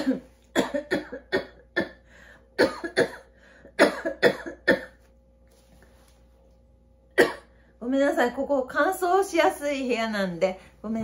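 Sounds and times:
woman coughing: 0.0 - 2.0, 2.6 - 5.0, 7.2 - 7.5.

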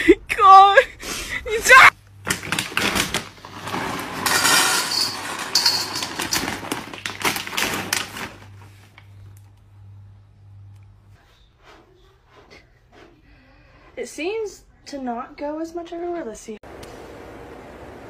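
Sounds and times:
kibble clattering in metal bowl: 2.3 - 8.7.

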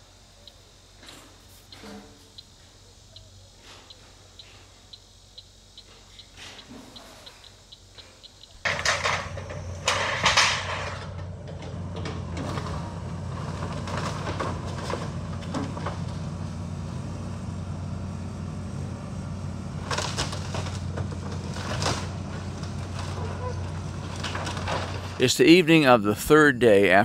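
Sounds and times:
heavy machine engine humming: 0.0 - 27.0
debris crashing: 8.6 - 16.2, 19.8 - 25.2.

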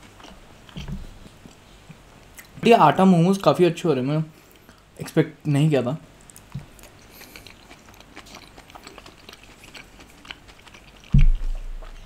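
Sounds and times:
chewing mouth clicks and smacks: 0.0 - 2.6, 6.2 - 12.0.

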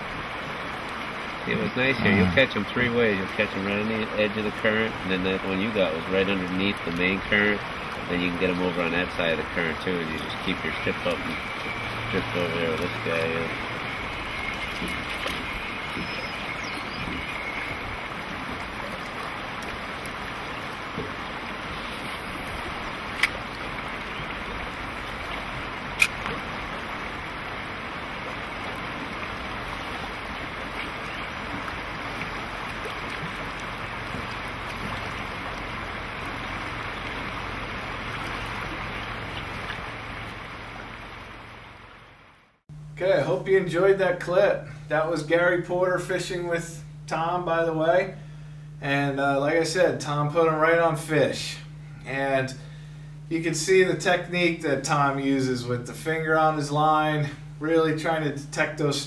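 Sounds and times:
river water rushing: 0.0 - 42.5
sharp clicks: 26.0 - 26.4.

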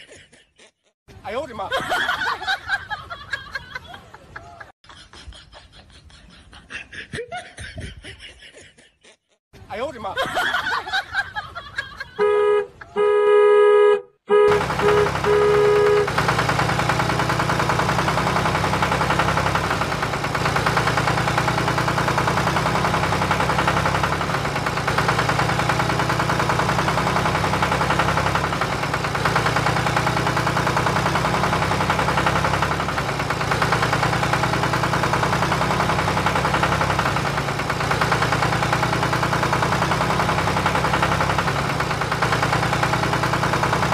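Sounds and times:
truck horn honking: 12.2 - 16.4
truck engine idling: 12.2 - 43.9.

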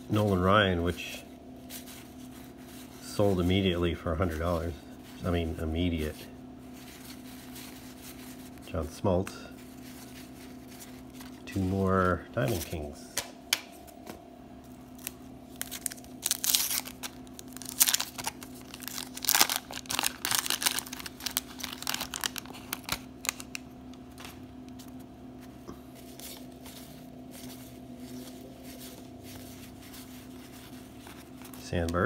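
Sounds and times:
faint steady hum: 0.0 - 32.0
wax paper wrapper tearing: 14.9 - 25.0
cards rustling and clicking: 14.9 - 32.0.

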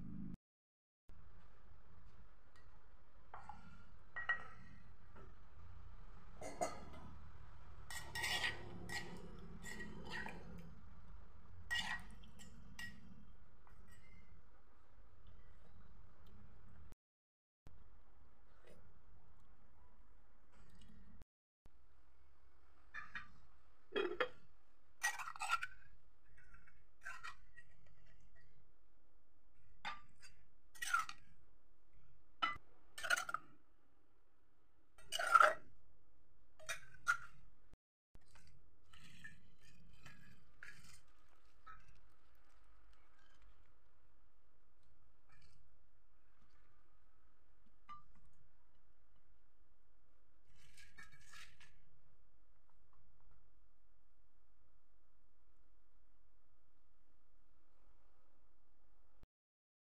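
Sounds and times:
spoon scraping a mortar: 7.9 - 10.6, 11.7 - 13.0, 38.3 - 43.5, 50.5 - 51.8.

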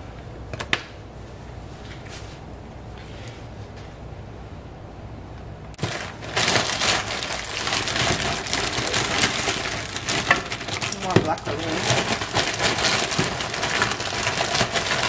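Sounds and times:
plastic bag crinkling: 5.8 - 15.0.

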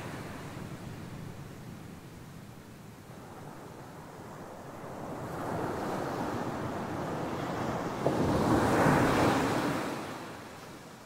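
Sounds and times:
wave crashing on beach: 4.8 - 10.5.

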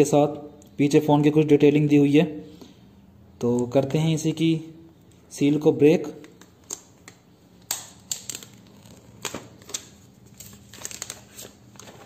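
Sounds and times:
plastic film crinkling: 6.2 - 12.0.

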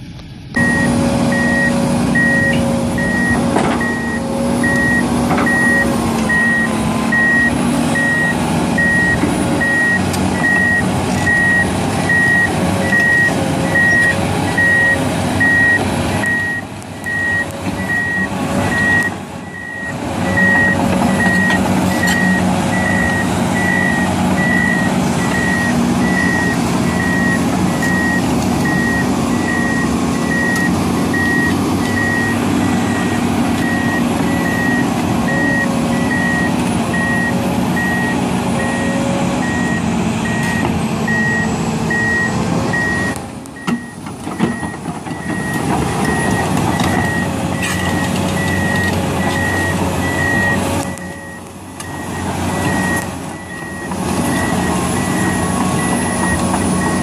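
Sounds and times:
diesel engine drone: 0.0 - 57.0
backup alarm beeping: 0.6 - 57.0.

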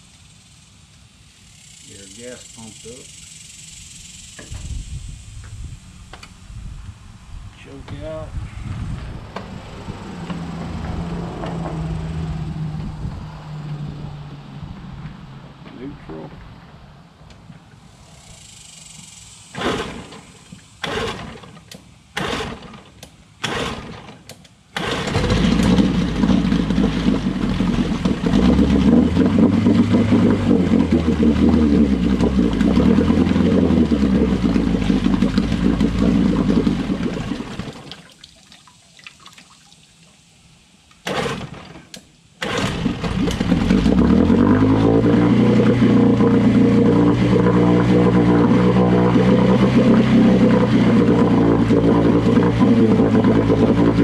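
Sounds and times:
outboard pull-start cord pulls: 19.5 - 38.0, 41.0 - 44.4
outboard engine running: 19.5 - 38.1, 41.0 - 41.8, 42.4 - 54.0.

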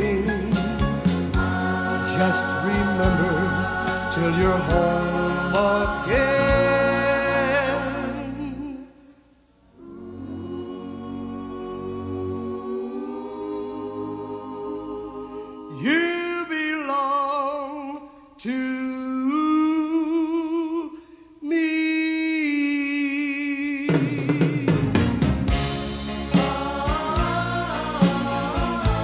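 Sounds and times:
band with drums playing: 0.0 - 2.0, 23.9 - 29.0
person singing with vibrato: 0.0 - 24.8.

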